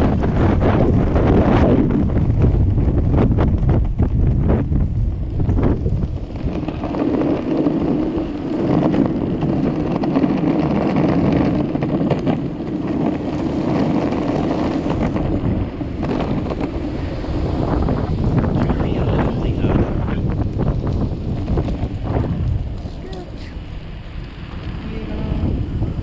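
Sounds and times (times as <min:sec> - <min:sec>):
skateboard wheels rolling on pavement: 0:00.0 - 0:26.0
wind on microphone: 0:00.0 - 0:26.0
faint ticks from road bumps: 0:03.3 - 0:18.8, 0:20.2 - 0:24.8.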